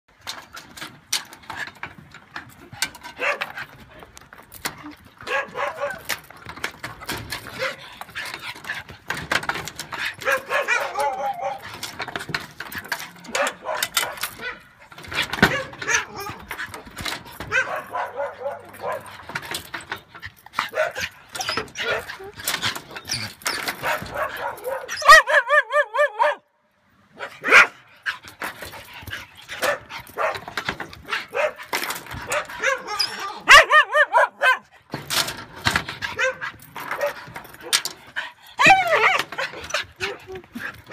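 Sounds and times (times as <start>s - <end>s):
chain clicking: 0.2s - 25.4s, 28.0s - 40.9s
dog barking and yipping: 3.1s - 3.6s, 5.2s - 6.3s, 7.4s - 8.6s, 9.9s - 12.1s, 12.8s - 19.4s, 20.6s - 26.5s, 27.1s - 28.2s, 29.2s - 34.8s, 36.0s - 37.9s, 38.6s - 40.9s
dog whining and yelping: 10.0s - 12.2s, 20.6s - 26.4s, 32.2s - 34.7s, 38.2s - 40.9s
dog whining: 10.2s - 11.9s, 38.6s - 40.6s.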